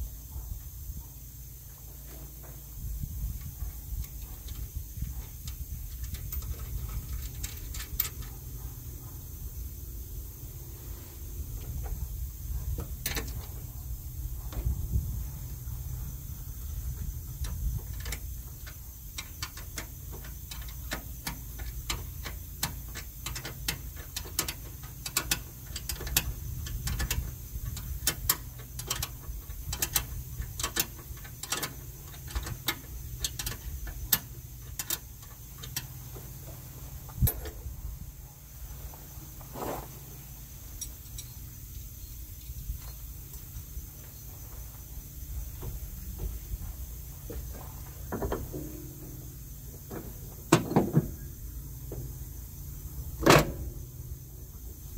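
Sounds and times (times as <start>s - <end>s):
steady low hum: 0.0s - 54.9s
hand tools clinking on metal: 40.7s - 41.5s.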